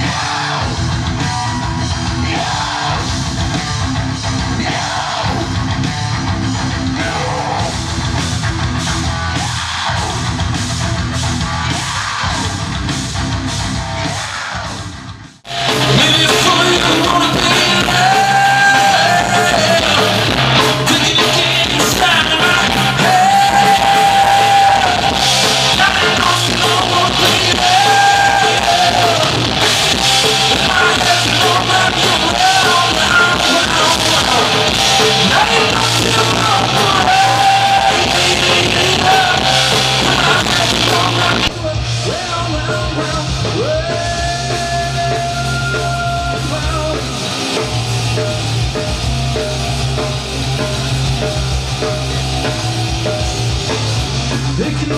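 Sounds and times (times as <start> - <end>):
man singing: 0.0 - 3.2, 4.3 - 5.6, 6.8 - 7.8, 15.5 - 47.6, 54.3 - 54.9
rock band playing: 0.0 - 54.9.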